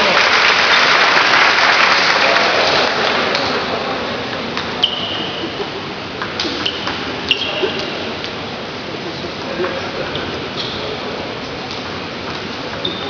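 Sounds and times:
spectators applauding: 0.0s - 4.0s.

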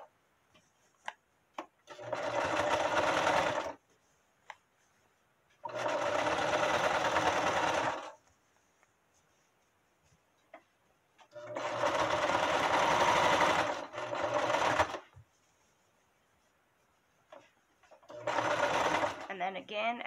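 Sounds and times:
electric sewing machine stitching: 1.9s - 3.8s, 5.6s - 8.2s, 11.4s - 15.0s, 18.0s - 19.3s.

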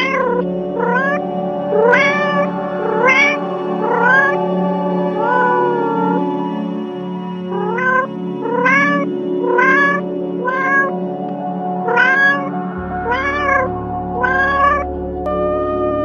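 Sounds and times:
cat meowing: 0.0s - 1.2s, 1.8s - 4.4s, 5.2s - 6.2s, 7.5s - 10.9s, 11.9s - 14.9s
ambient background music: 0.0s - 16.0s.

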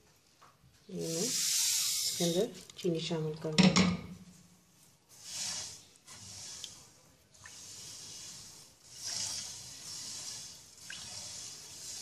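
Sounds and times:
spatula stirring sugar in pan: 0.9s - 2.5s, 4.7s - 12.0s.

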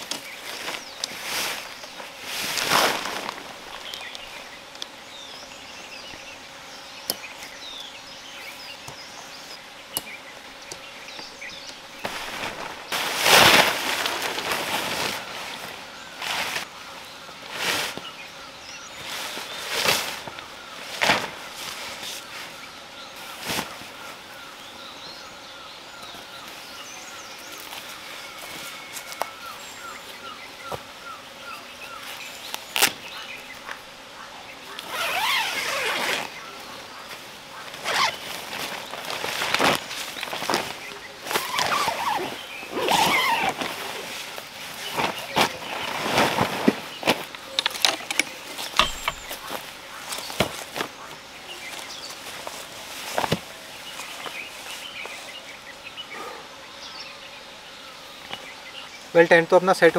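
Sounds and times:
tent fabric rustling: 0.0s - 4.5s, 11.1s - 16.7s, 17.4s - 18.2s, 18.8s - 24.2s, 34.7s - 55.6s
birds chirping: 0.0s - 59.9s.

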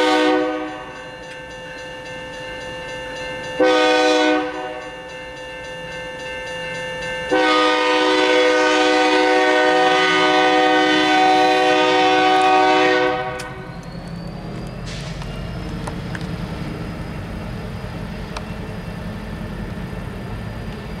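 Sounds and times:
locomotive air horn blast: 0.0s - 0.8s, 3.6s - 4.8s, 7.3s - 13.6s
diesel engines rumbling: 8.9s - 21.0s.

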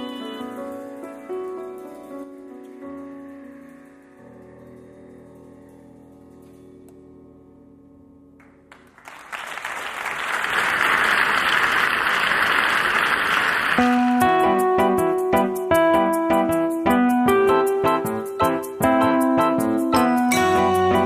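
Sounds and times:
audience applause: 8.7s - 14.2s.

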